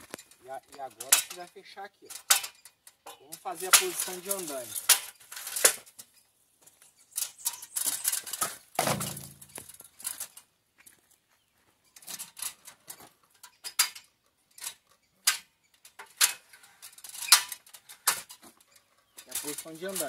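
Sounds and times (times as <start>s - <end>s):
metal ladder clicks and rattles: 0.0s - 6.2s, 7.1s - 10.5s, 11.9s - 20.0s.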